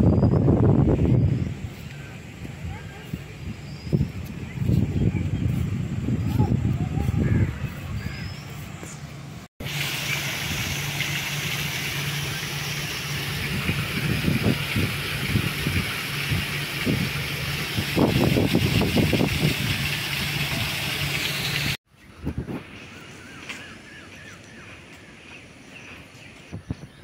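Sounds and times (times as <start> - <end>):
wind buffeting microphone: 0.0 - 9.5, 13.2 - 20.9, 21.5 - 23.1, 26.4 - 27.0
waterfall splashing onto rock: 9.6 - 21.8.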